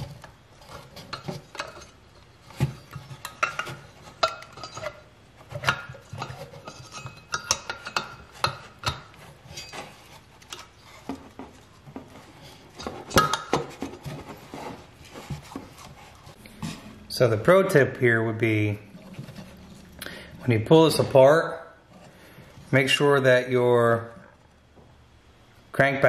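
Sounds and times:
metal engine parts clinking: 0.0 - 11.0.

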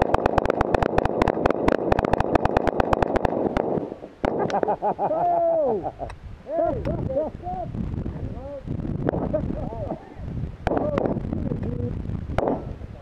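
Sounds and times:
rapid pistol fire: 0.0 - 4.5.

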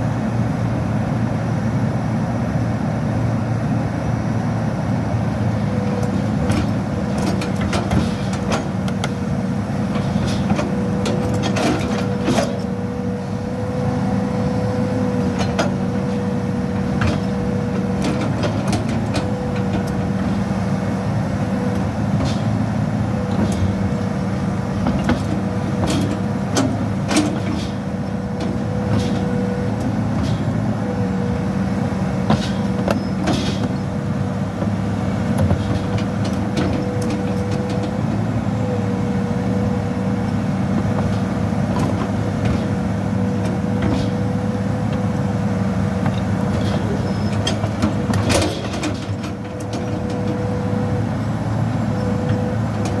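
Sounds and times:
excavator diesel engine running: 0.0 - 53.0
metal clanks and knocks: 9.9 - 12.7, 24.8 - 27.8, 32.3 - 33.8, 46.0 - 50.4.

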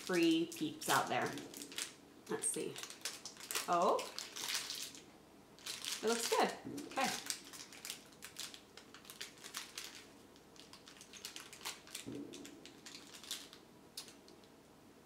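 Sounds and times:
foil wrapper crinkling: 0.0 - 14.2
closed-mouth hum: 6.4 - 7.4.

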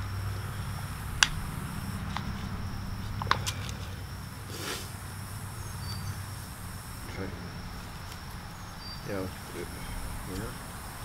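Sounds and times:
low steady hum: 0.0 - 11.0
rustle of foliage and soil: 0.0 - 11.0
plastic pot clicking and crackling: 3.2 - 3.8.

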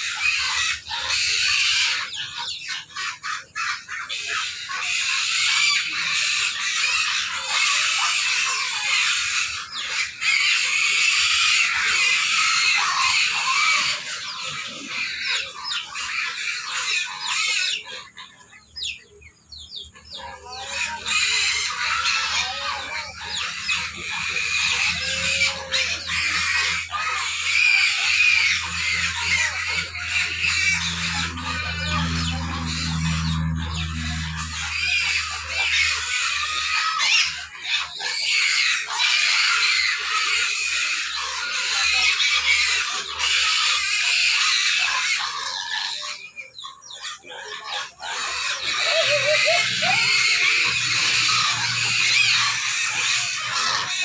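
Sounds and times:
pigs squealing: 0.0 - 54.0
low steady hum: 28.6 - 35.5.

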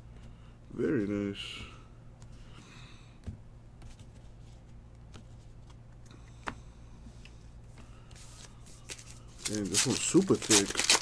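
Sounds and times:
steady low hum: 0.0 - 11.0
cards rustling and sliding: 7.8 - 11.0.

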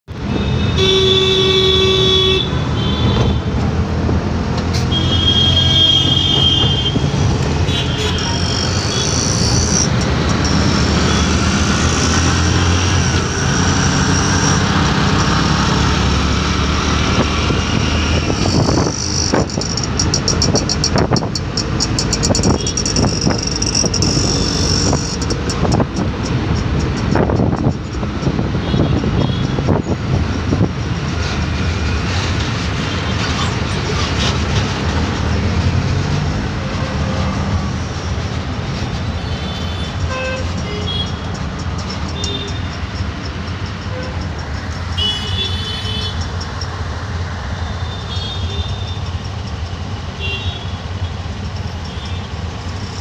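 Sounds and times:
auto-rickshaw engines running: 0.1 - 53.0
vehicle horns honking: 0.3 - 3.6, 4.8 - 13.6, 18.1 - 25.8, 39.2 - 42.7, 44.9 - 46.2, 50.2 - 50.8
fast rattle: 18.0 - 28.3, 40.5 - 45.0.

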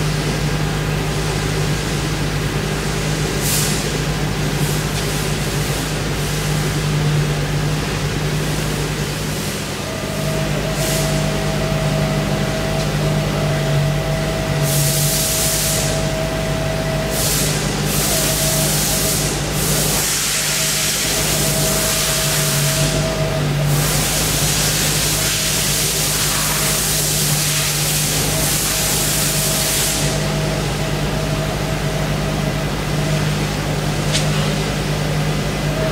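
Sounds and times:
machine hum: 0.0 - 35.9
steady machine whine: 0.0 - 35.9.

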